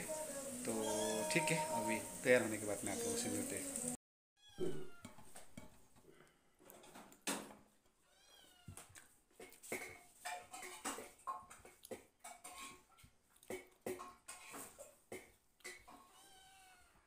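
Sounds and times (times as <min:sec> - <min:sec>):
small cat meowing: 0:00.8 - 0:01.7, 0:04.4 - 0:05.1, 0:08.1 - 0:08.9, 0:16.0 - 0:17.0.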